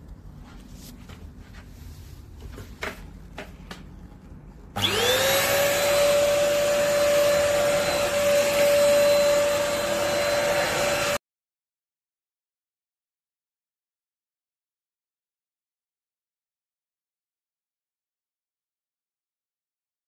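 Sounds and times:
stick vacuum cleaner running: 0:04.7 - 0:11.2.

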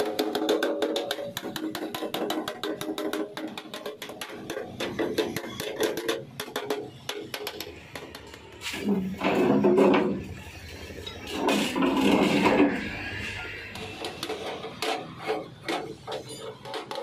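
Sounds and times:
hammer beating metal panel: 0:00.0 - 0:08.2.

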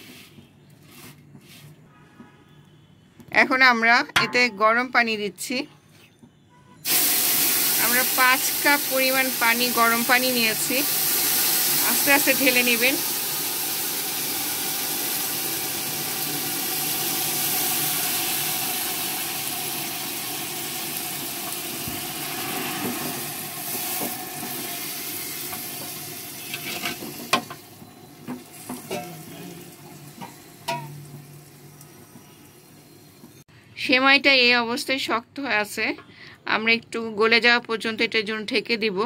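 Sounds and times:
spatula knocking against metal pot: 0:04.1 - 0:04.6, 0:30.2 - 0:31.0
water sizzling and bubbling in pot: 0:06.8 - 0:33.4.

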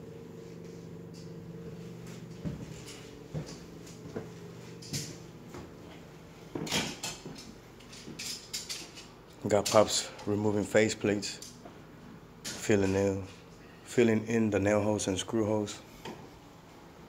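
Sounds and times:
low hum: 0:00.0 - 0:06.5
footsteps thudding: 0:02.3 - 0:05.8.

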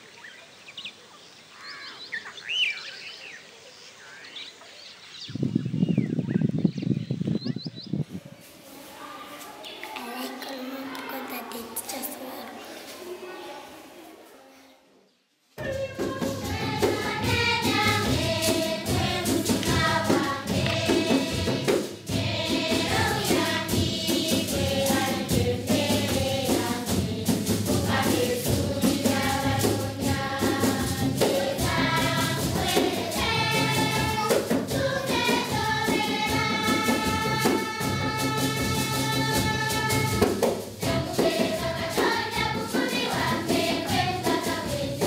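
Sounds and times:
choir singing: 0:15.6 - 0:45.0.

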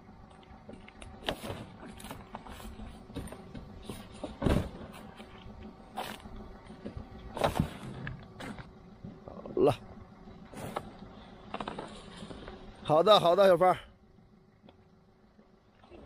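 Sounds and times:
knocks rattles and clatter of gear: 0:00.2 - 0:09.8, 0:10.4 - 0:13.7
heavy thump: 0:03.1 - 0:04.9.

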